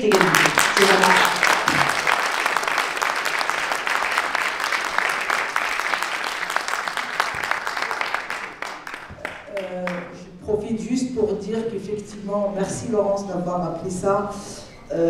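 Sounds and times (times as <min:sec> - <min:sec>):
audience applause: 0:00.0 - 0:10.1.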